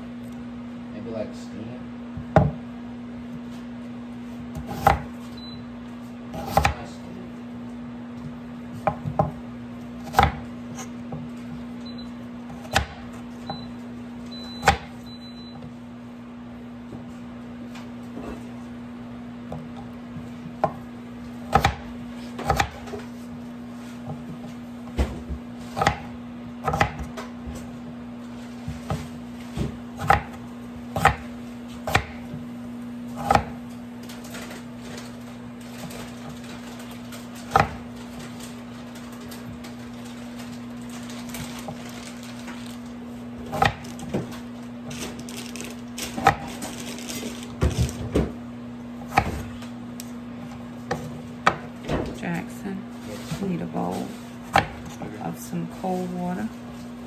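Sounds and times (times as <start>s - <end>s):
knife chopping on wooden board: 2.3s - 2.6s, 4.5s - 5.2s, 6.3s - 6.9s, 8.2s - 9.4s, 10.0s - 11.3s, 12.5s - 13.6s, 21.5s - 23.1s, 24.0s - 27.6s, 28.7s - 32.4s, 33.2s - 33.6s, 37.5s - 37.9s, 43.4s - 44.4s, 46.2s - 46.7s, 49.0s - 49.6s, 50.5s - 51.7s, 54.4s - 55.0s.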